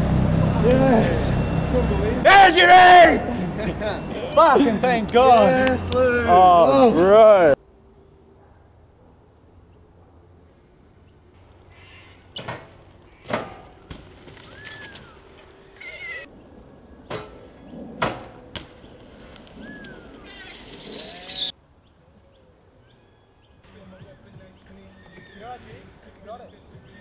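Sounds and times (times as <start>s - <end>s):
bike knocks and clanks: 12.4s - 14.4s, 17.1s - 18.8s.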